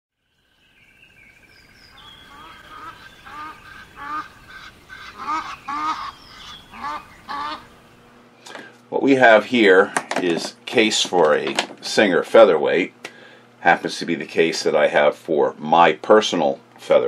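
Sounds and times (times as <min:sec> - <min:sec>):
small birds chirping: 0:00.2 - 0:08.6
geese honking: 0:01.9 - 0:07.9.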